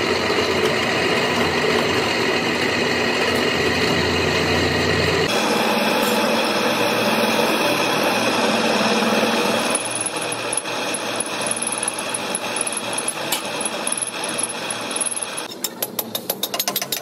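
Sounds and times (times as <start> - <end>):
drill press boring into steel: 5.3 - 17.0.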